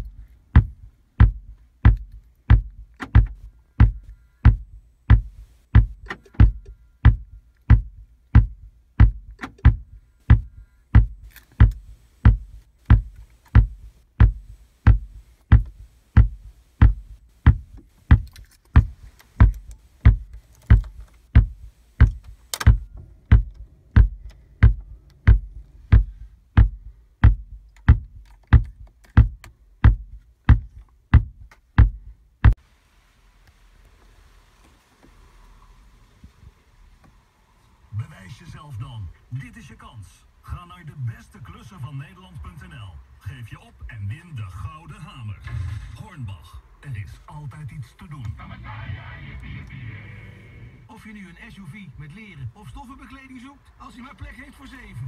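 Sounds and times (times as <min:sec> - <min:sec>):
low thump through car speakers: 0:00.0 - 0:32.6.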